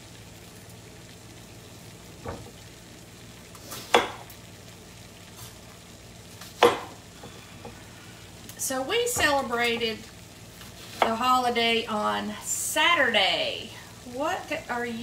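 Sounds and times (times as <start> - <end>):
steady low hiss: 0.0 - 15.0
knife cutting onion on board: 3.7 - 4.2, 6.4 - 7.0.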